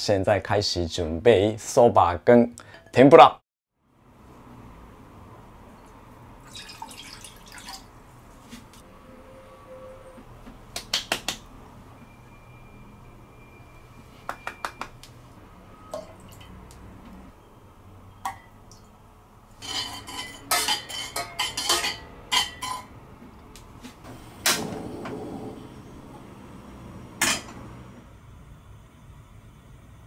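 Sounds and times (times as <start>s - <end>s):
glass bowls clinking on saucepan: 19.6s - 22.9s
gas rush: 24.0s - 28.0s.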